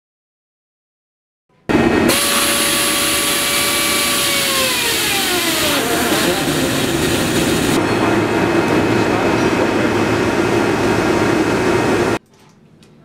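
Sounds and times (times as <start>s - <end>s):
pneumatic wrench motor whining: 1.7s - 7.8s.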